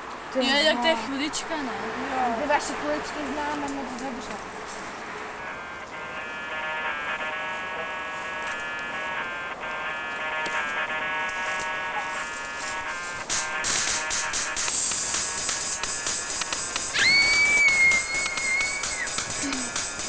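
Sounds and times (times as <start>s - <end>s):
buzzy synthesizer chords: 4.4s - 20.0s.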